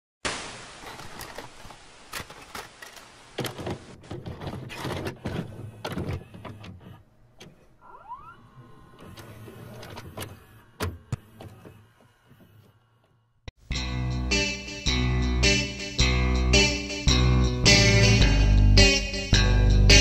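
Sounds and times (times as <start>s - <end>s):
hiss: 0.2s - 3.4s
tape mechanism clicks and clunks: 2.1s - 7.7s, 8.9s - 12.8s
motor whirr: 8.2s - 12.9s.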